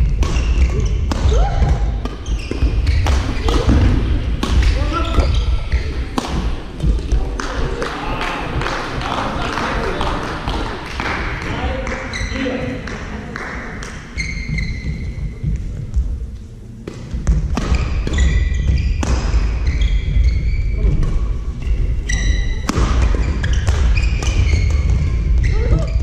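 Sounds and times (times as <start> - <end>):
racket hitting shuttlecock: 0.0 - 8.0
shoes squeaking on floor: 0.3 - 3.8, 4.6 - 6.0, 12.1 - 12.6, 14.2 - 15.5, 17.6 - 26.0.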